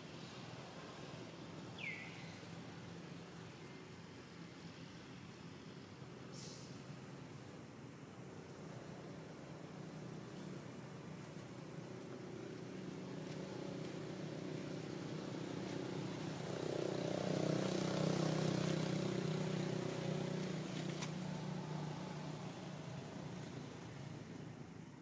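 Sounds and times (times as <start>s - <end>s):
vehicle engine passing by: 8.4s - 24.7s.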